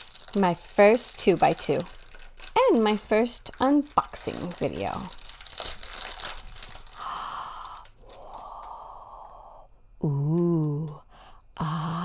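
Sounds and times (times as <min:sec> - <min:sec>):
plastic wrapping crinkling: 0:00.0 - 0:08.4
breathy exhales: 0:06.9 - 0:09.7.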